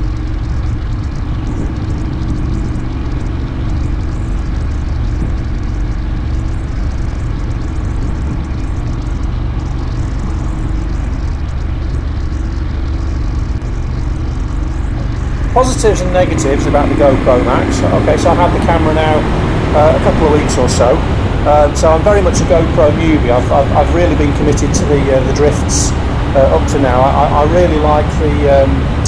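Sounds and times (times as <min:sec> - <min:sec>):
motorcycle engine running: 0:00.0 - 0:29.0
wind and road noise: 0:00.0 - 0:29.0.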